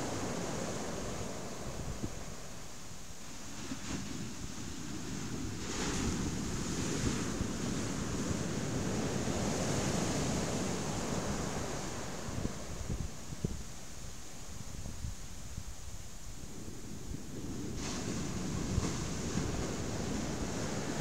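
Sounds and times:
surf breaking on a beach: 0.0s - 2.6s, 3.2s - 14.7s, 16.5s - 21.0s
wind buffeting microphone: 3.6s - 13.8s, 14.5s - 21.0s.

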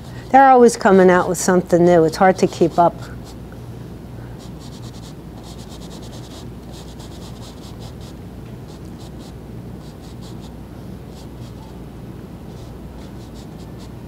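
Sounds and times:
steady low hum: 0.0s - 14.0s
paintbrush scrubbing on canvas: 2.3s - 3.4s, 12.5s - 14.0s.

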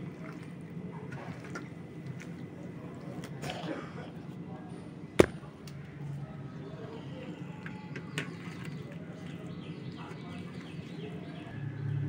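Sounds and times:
sharp knock: 5.2s - 5.4s.

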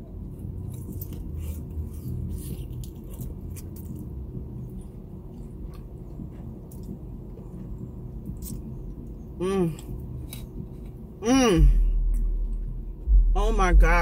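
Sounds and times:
crunchy chewing: 0.0s - 11.2s
low steady hum: 0.0s - 14.0s.

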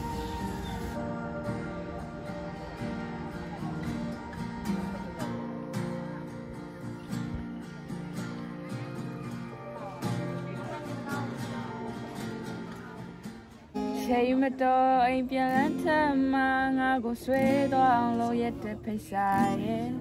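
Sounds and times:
acoustic guitar strumming: 0.0s - 20.0s
person singing: 13.8s - 20.0s.

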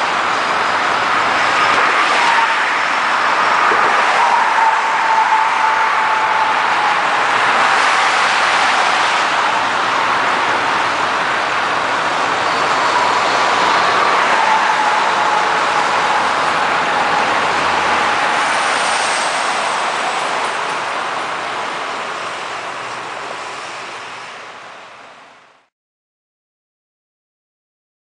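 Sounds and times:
faint whine dropping in pitch: 0.0s - 21.2s
highway traffic: 0.0s - 25.7s.

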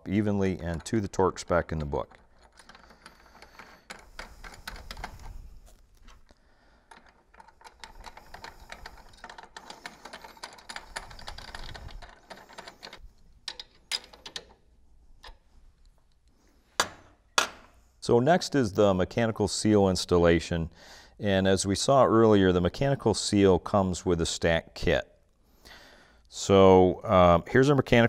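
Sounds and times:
small metallic clicks and rattles: 0.5s - 16.3s.

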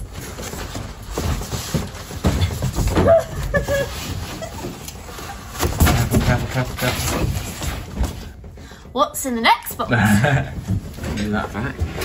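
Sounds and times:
cardboard boxes scraping and rustling: 0.0s - 8.4s.

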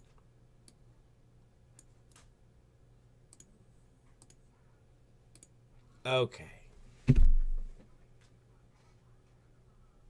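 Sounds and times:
low background hum: 0.0s - 10.0s
computer clicks: 3.3s - 3.5s, 4.2s - 4.4s, 5.3s - 5.6s.

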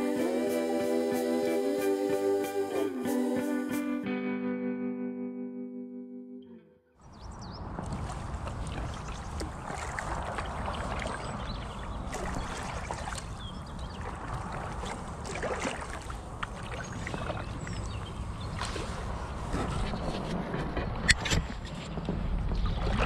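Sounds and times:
water lapping against kayak hull: 7.6s - 23.0s
small splashes: 7.7s - 19.5s.

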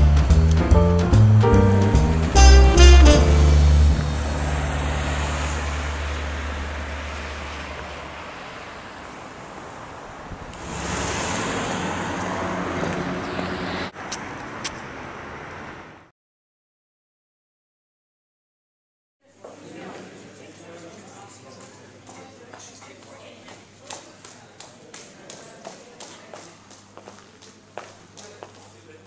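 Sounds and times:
music track: 0.0s - 6.1s
car passing: 0.0s - 16.1s
road traffic: 0.0s - 16.1s.

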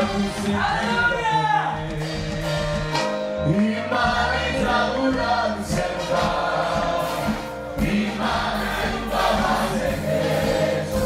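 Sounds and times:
instrumental backing: 0.0s - 11.0s
gospel choir singing: 3.4s - 11.0s.

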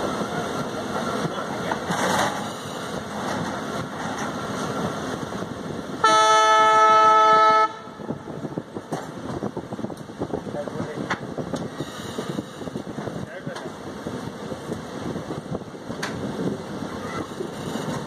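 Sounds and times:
train coaches rumbling on rails: 0.0s - 18.0s
locomotive horn blast: 6.0s - 8.3s.

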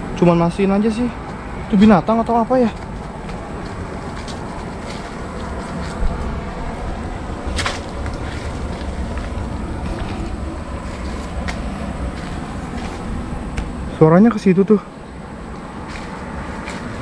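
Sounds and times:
steady low rumble: 0.0s - 17.0s
footsteps in dry leaves: 2.6s - 13.4s, 15.7s - 17.0s
sharp rustle or snap: 7.5s - 11.6s.

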